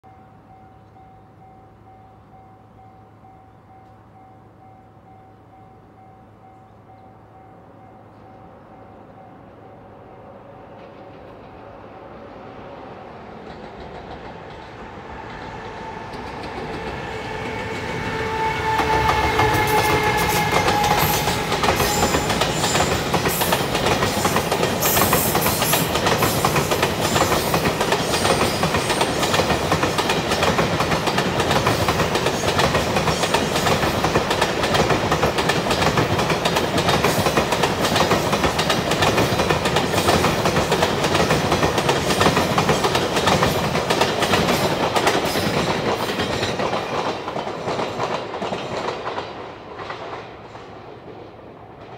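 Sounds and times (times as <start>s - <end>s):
electric locomotive whine: 0.0s - 51.9s
train wheels clattering: 13.2s - 51.9s.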